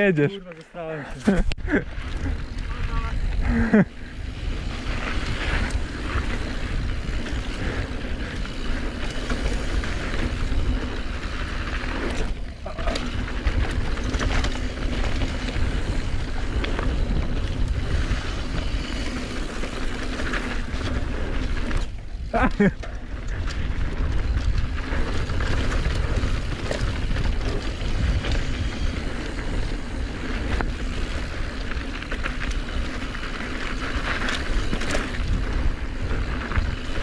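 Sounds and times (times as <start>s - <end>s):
tyres rumbling over dirt: 1.2s - 37.0s
wind rush: 1.6s - 31.9s
bike knocks and rattles: 12.0s - 33.0s.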